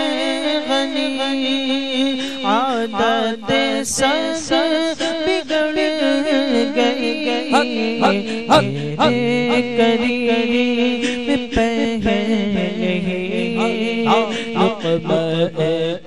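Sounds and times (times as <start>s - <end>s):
voices singing unaccompanied: 6.1s - 15.8s.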